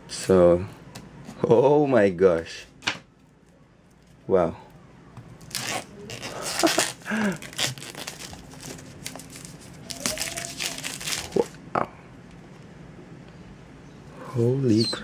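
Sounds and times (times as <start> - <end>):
plastic shrink-wrap crinkling: 5.4 - 11.6.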